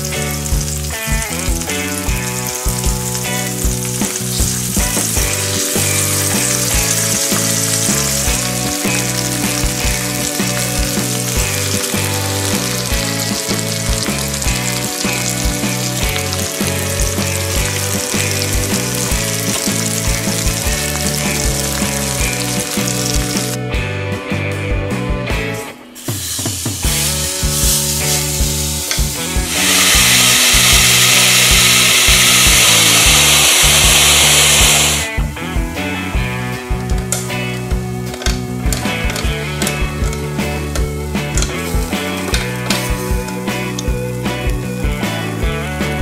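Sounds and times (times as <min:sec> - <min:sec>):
sizzling and bubbling on waffle iron: 0:00.0 - 0:23.6, 0:26.0 - 0:35.0
background music with steady beat: 0:00.0 - 0:46.0.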